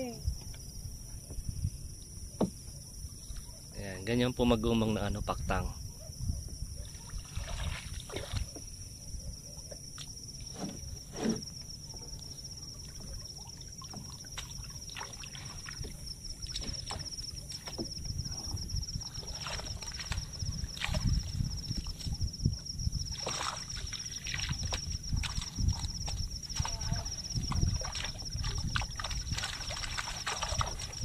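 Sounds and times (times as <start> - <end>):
water sloshing against boat hull: 0.0 - 3.7, 5.9 - 31.0
insects chirring: 0.0 - 31.0
knocks on boat: 17.7 - 18.6
water streaming off net: 27.7 - 31.0.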